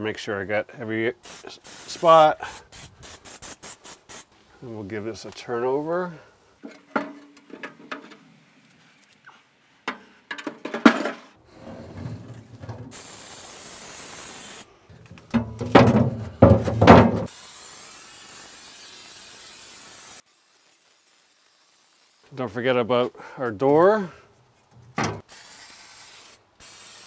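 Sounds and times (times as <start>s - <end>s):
aerosol spray hissing: 1.2s - 4.4s, 12.9s - 14.7s, 17.2s - 22.3s, 25.2s - 27.0s
metal plate clattering and scraping: 6.6s - 8.2s, 9.9s - 12.9s, 15.4s - 17.3s.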